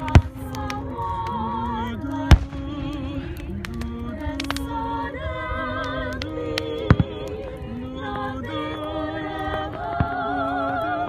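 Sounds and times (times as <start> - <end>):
fireworks bursting: 0.0 - 11.0
person singing slow song: 0.0 - 11.0.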